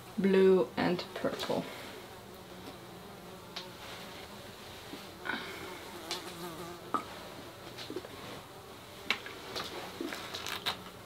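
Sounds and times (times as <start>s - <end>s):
squeeze bottle squelching: 9.6s - 10.8s.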